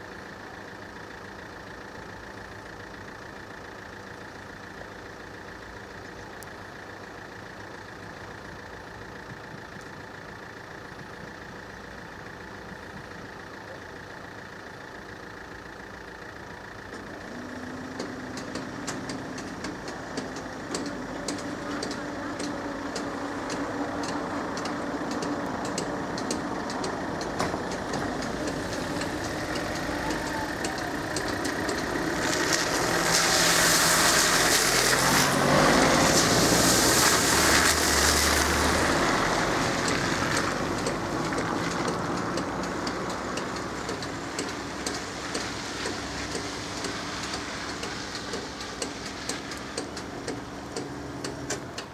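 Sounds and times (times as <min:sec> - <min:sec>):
car engines idling: 0:00.0 - 0:51.9
cars driving on wet asphalt: 0:00.0 - 0:51.9
faint regular ticking: 0:16.9 - 0:32.6.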